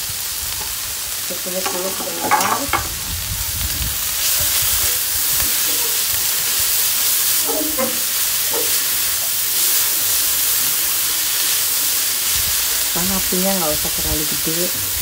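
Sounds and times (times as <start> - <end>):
vegetables sizzling in hot oil: 0.0 - 15.0
spatula scraping a wok: 1.6 - 3.0, 4.2 - 11.7.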